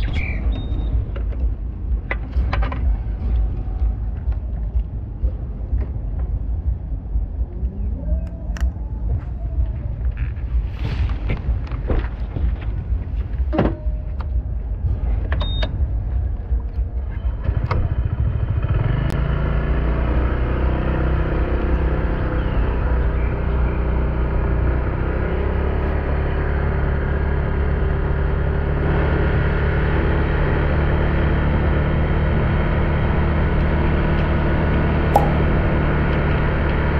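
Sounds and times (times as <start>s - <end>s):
motorbike engine rumbling: 0.0s - 19.2s, 31.9s - 36.9s.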